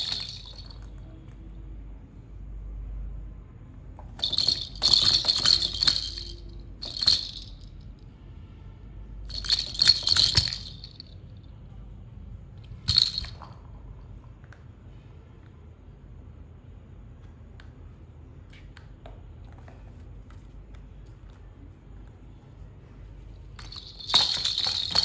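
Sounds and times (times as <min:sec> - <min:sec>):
plastic toy rattle shaken: 0:00.0 - 0:00.8, 0:04.2 - 0:07.7, 0:09.3 - 0:11.0, 0:12.9 - 0:13.5, 0:23.6 - 0:25.0.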